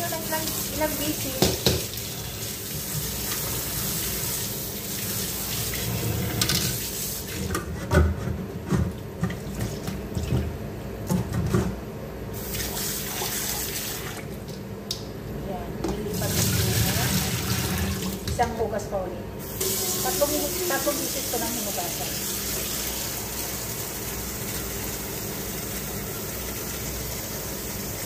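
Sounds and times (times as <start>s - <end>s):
tap water running into bowl: 0.2s - 6.8s.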